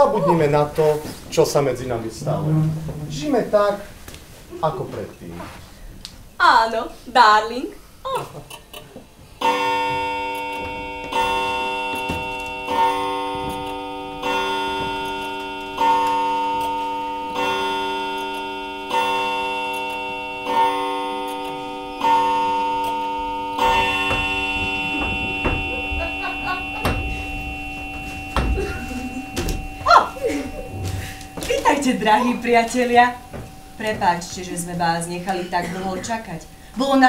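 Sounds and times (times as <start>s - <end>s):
clock chime striking: 9.4s - 37.0s
faint knocks: 23.6s - 36.4s.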